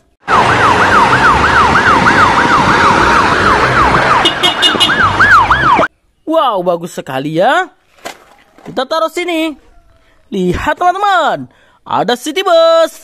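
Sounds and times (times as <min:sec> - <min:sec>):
traffic noise: 0:00.0 - 0:06.4
ambulance siren yelping: 0:00.2 - 0:05.9.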